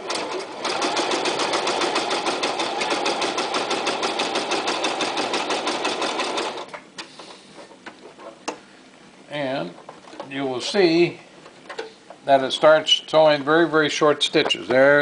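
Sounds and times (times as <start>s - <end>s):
sewing machine stitching: 0.0s - 6.7s.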